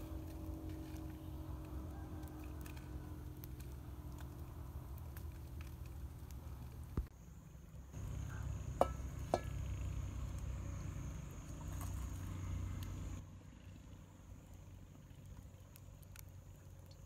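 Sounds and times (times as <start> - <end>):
metal wok clanking on stones: 8.7 - 9.7.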